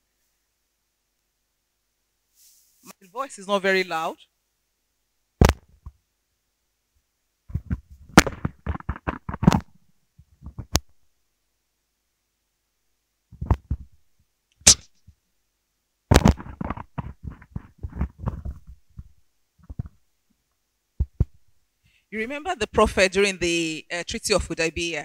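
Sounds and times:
microphone handling noise: 0:07.5 - 0:10.8, 0:16.1 - 0:20.0.

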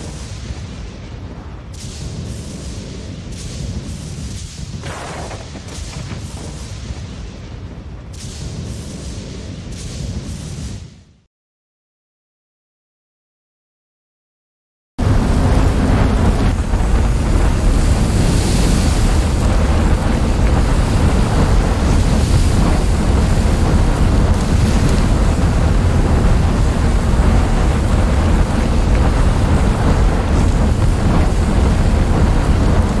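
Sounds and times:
steady deep rumbling rush: 0:15.0 - 0:33.0.

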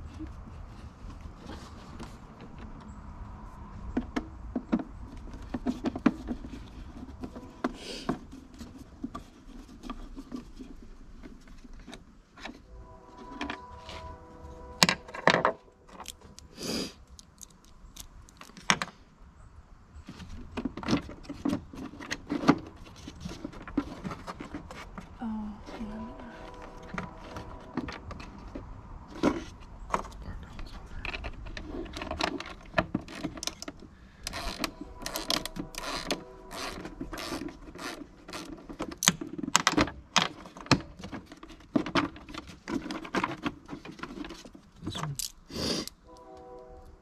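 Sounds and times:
screwdriver and plastic parts rattling: 0:14.8 - 0:18.9, 0:20.1 - 0:25.2, 0:31.0 - 0:45.5.

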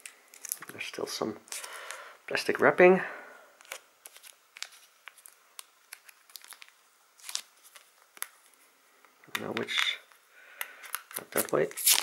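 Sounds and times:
plastic wrapping crinkling: 0:00.0 - 0:02.0, 0:03.6 - 0:08.6, 0:10.8 - 0:12.0.

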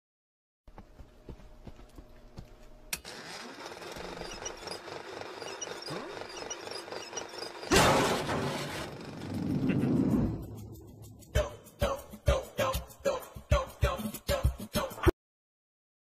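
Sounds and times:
film projector whirring: 0:02.9 - 0:09.5.

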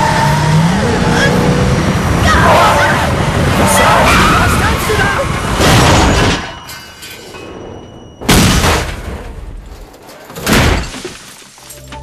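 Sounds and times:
car crashes: 0:05.4 - 0:06.8, 0:08.2 - 0:11.6.

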